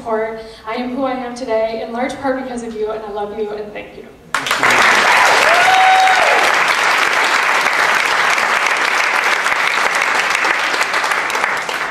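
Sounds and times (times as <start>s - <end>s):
audience applauding: 4.3s - 11.9s
person cheering: 4.4s - 6.6s.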